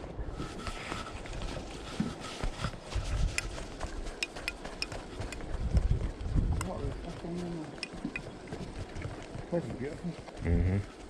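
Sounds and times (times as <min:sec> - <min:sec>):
fishing gear clicks and knocks: 0:00.6 - 0:05.5, 0:07.6 - 0:09.3.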